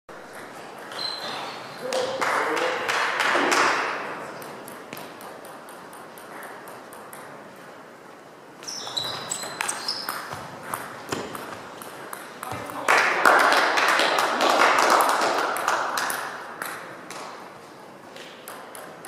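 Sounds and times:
shoes squeaking on floor: 0:00.6 - 0:02.0, 0:08.6 - 0:11.8
table tennis ball clicks: 0:04.3 - 0:07.6, 0:18.2 - 0:19.0.

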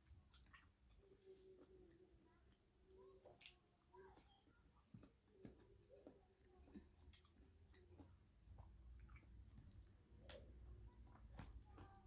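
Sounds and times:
faint eating mouth sounds: 0:00.0 - 0:12.0.

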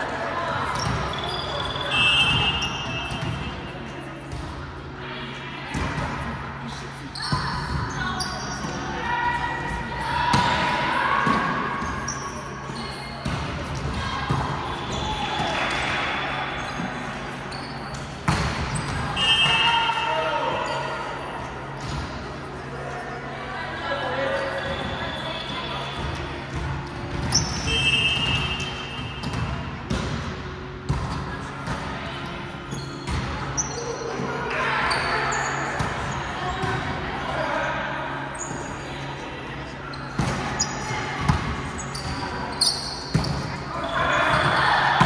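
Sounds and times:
sneaker squeaking on floor: 0:00.7 - 0:03.6, 0:07.1 - 0:08.9, 0:16.6 - 0:19.8, 0:27.2 - 0:29.4, 0:32.6 - 0:33.9, 0:39.9 - 0:44.6
volleyball smacks echoing in gym: 0:17.9 - 0:19.8, 0:26.0 - 0:32.0
referee whistle blast: 0:27.7 - 0:29.0.

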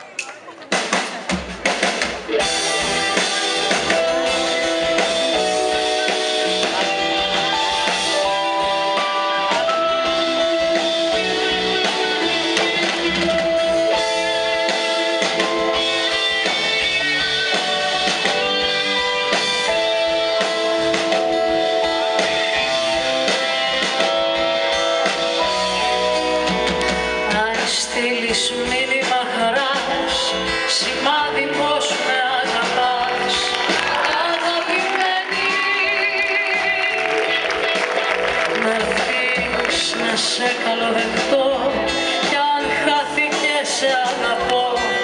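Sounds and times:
drum kit: 0:00.0 - 0:45.0
strummed guitars: 0:00.6 - 0:45.0
melody of long held notes: 0:02.4 - 0:27.4.

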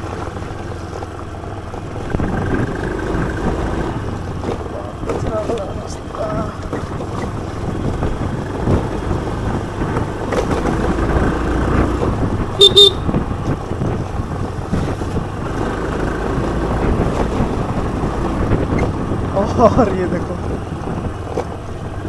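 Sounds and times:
motor scooter engine: 0:00.0 - 0:22.0
scooter horn beeps: 0:12.6 - 0:13.2.

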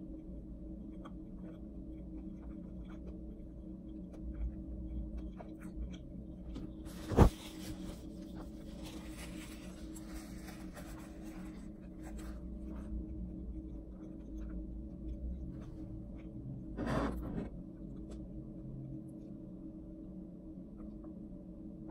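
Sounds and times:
steady low hum: 0:00.0 - 0:21.9
chewing and mouth sounds: 0:00.8 - 0:06.6
paper napkin rustling: 0:06.9 - 0:12.4.

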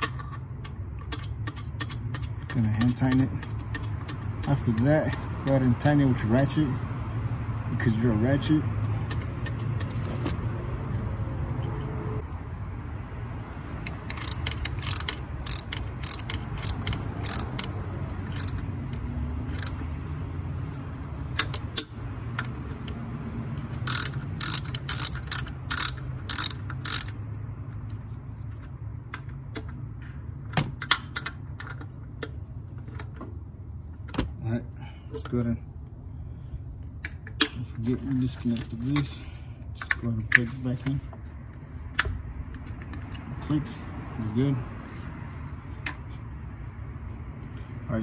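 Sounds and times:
ratchet wrench clicking: 0:00.0 - 0:06.6, 0:13.8 - 0:19.9, 0:21.2 - 0:27.2.

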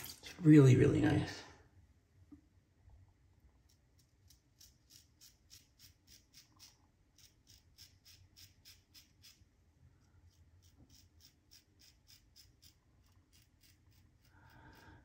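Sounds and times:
razor scraping stubble: 0:03.6 - 0:09.5, 0:10.2 - 0:14.8.

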